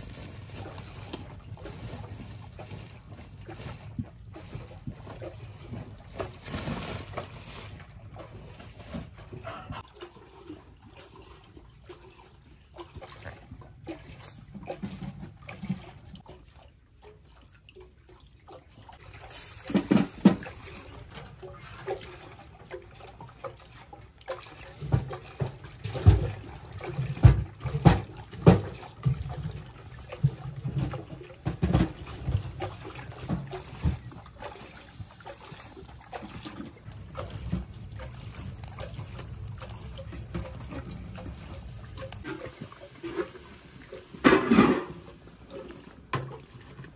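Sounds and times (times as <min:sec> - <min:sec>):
rain pattering: 0:00.0 - 0:07.8, 0:24.6 - 0:45.2
firewood knocking and clattering: 0:24.8 - 0:43.4.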